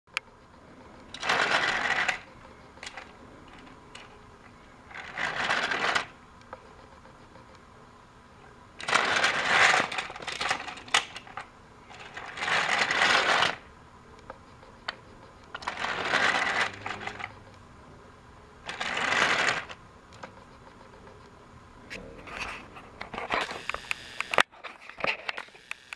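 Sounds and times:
toy train wagons rattling: 1.1s - 4.2s, 4.8s - 6.2s, 8.8s - 13.6s, 15.5s - 17.4s, 18.6s - 19.8s.

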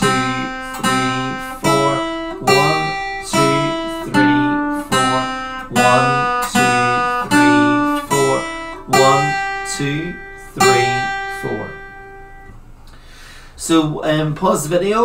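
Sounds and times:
acoustic guitar plucked blues melody: 0.0s - 12.6s.

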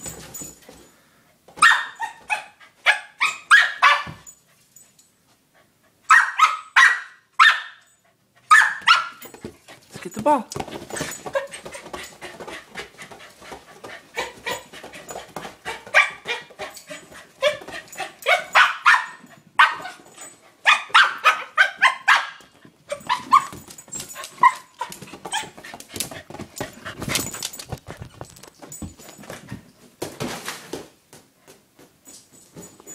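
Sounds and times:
dog barking and yipping: 1.6s - 4.4s, 6.1s - 9.3s, 14.1s - 14.8s, 15.7s - 25.6s.

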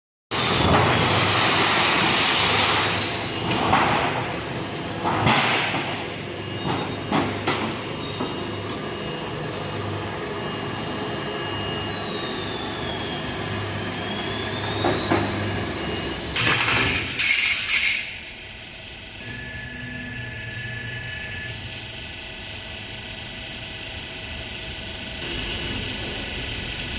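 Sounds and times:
workshop machinery noise: 0.3s - 26.9s
high machine whine: 0.4s - 26.9s
loud metal clatter: 16.4s - 18.2s.

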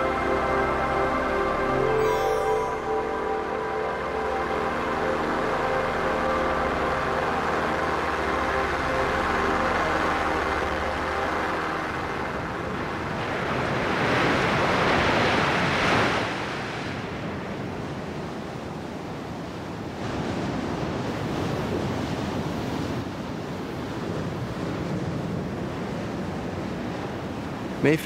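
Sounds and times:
wind: 0.0s - 28.0s
ocean surf breaking: 6.4s - 28.0s.

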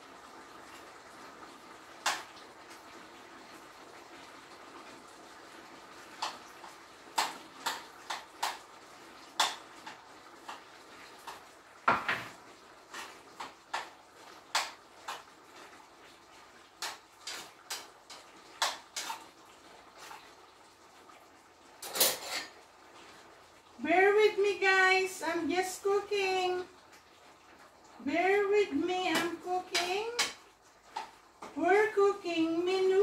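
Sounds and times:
faint steady hiss: 0.0s - 33.0s
cookware clinking and knocking: 11.9s - 12.3s, 21.8s - 22.5s.

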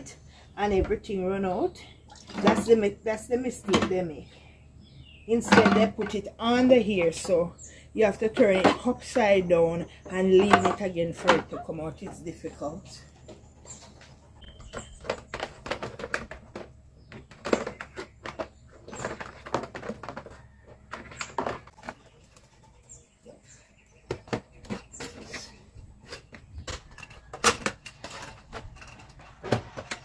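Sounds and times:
plastic parts clicking and knocking: 13.2s - 22.5s, 24.0s - 30.0s.

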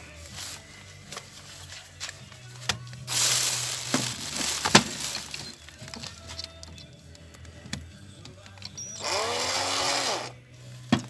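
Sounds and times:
cordless drill humming: 8.8s - 10.4s.

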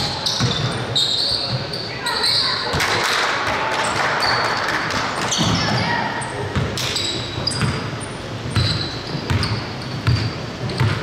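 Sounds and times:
sneaker squeaks: 0.0s - 3.0s, 3.8s - 11.0s
basketball dribbling thuds: 8.5s - 11.0s.

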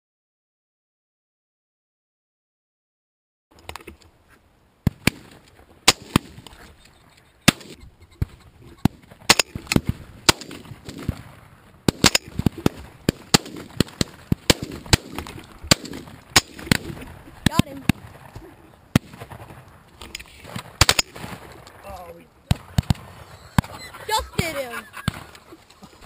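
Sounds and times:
shotgun shots: 4.9s - 6.5s, 7.4s - 18.3s, 18.9s - 19.6s, 20.4s - 21.6s, 22.5s - 23.7s.

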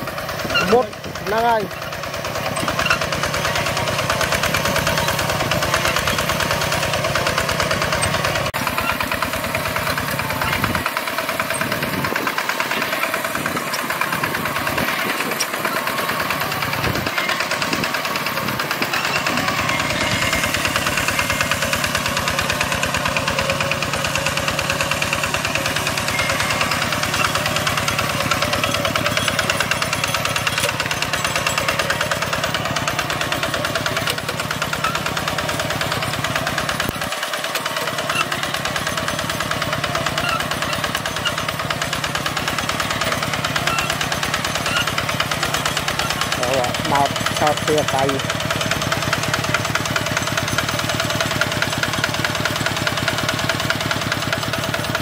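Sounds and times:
tractor engine chugging: 0.0s - 55.0s.

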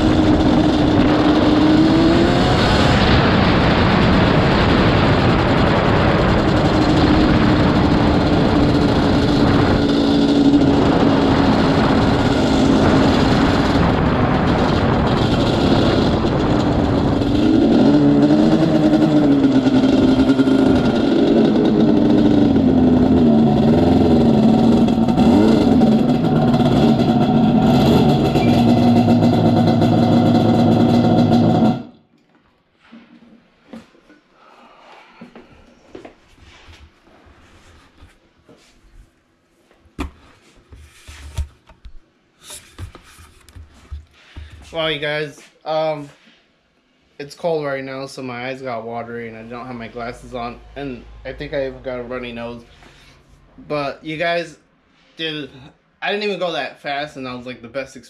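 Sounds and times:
two-stroke engine revving: 0.0s - 32.0s.

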